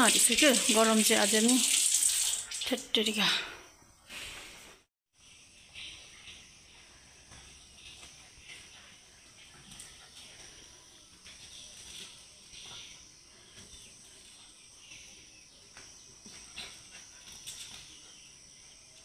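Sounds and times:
insects chirring: 5.2s - 19.0s.

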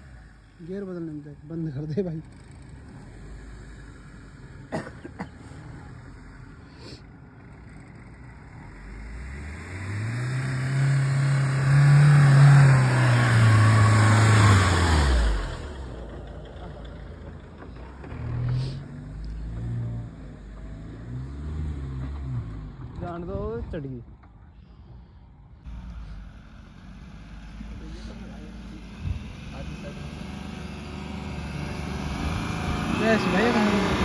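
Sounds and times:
diesel engine revving hard: 8.6s - 16.1s, 18.0s - 22.9s, 25.7s - 34.0s.

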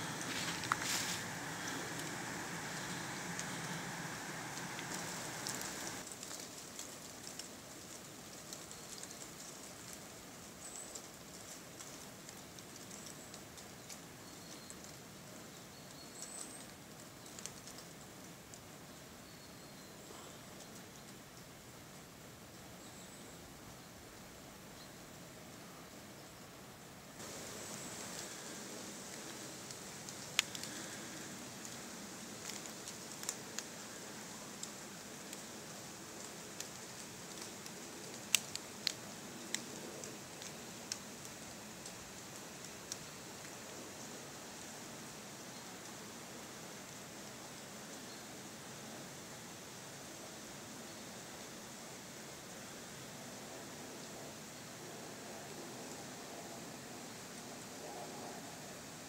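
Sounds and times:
dry leaves landing: 0.0s - 13.5s, 27.2s - 43.6s
soft steady hiss: 0.0s - 59.0s
light ticks: 29.1s - 34.0s, 36.2s - 43.6s.

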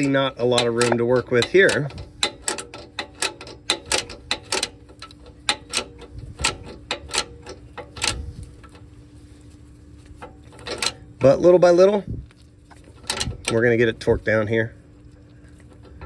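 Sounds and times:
hand ratchet clicking: 0.0s - 8.8s, 10.2s - 11.3s.

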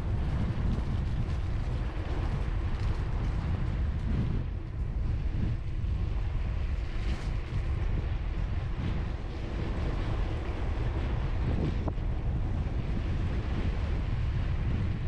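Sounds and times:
wind rumbling on microphone: 0.0s - 15.0s.

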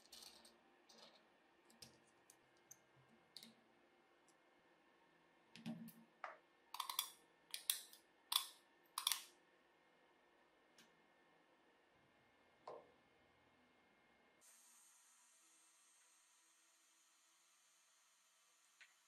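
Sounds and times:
faint clicks of small parts: 0.0s - 3.6s, 5.5s - 9.4s.

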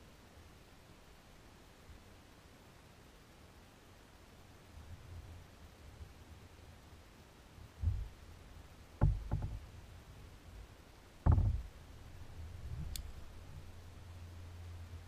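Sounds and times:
low steady rumble: 0.0s - 15.0s
hollow knocks on boat: 7.8s - 8.2s, 9.0s - 9.7s, 11.2s - 11.7s.

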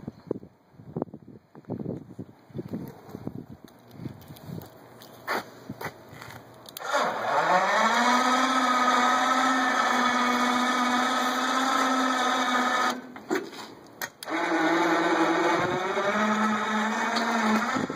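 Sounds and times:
electric motor whining: 6.8s - 13.1s, 14.2s - 17.9s.

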